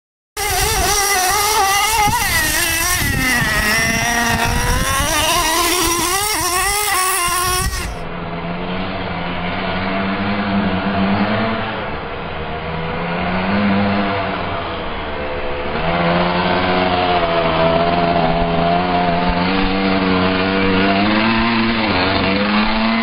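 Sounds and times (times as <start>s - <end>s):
rc truck nitro engine revving: 0.4s - 8.1s, 15.6s - 23.0s.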